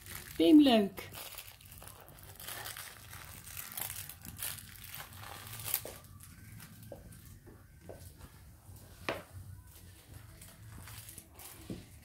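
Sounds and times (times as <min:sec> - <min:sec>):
cat chewing crinkly toy: 0:00.0 - 0:07.4.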